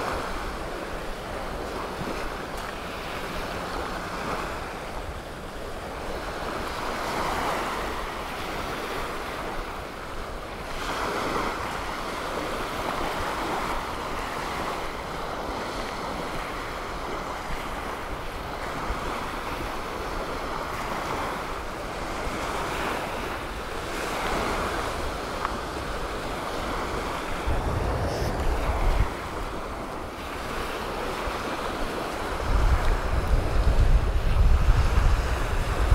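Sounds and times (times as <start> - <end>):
surf washing onto a beach: 0.0 - 35.9
wind on microphone: 24.2 - 35.9.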